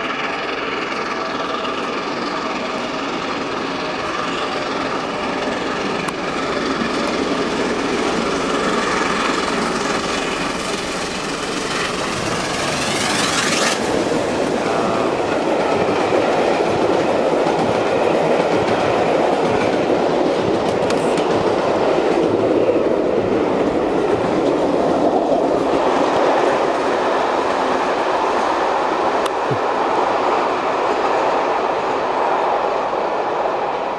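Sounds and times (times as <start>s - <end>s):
steam train rumbling past: 0.0s - 33.9s.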